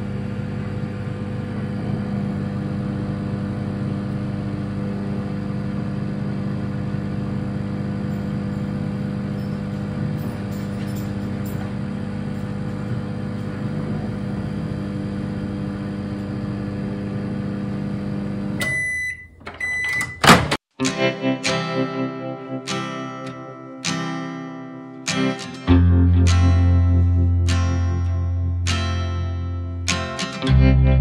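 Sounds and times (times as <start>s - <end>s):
microwave oven humming: 0.0s - 20.5s
microwave beeping: 0.1s - 20.6s
strummed guitar music: 20.8s - 31.0s.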